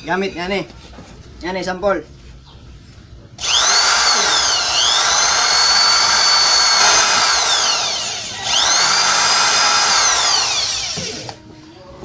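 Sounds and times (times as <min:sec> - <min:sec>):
electric drill boring into wood: 0:03.4 - 0:11.4.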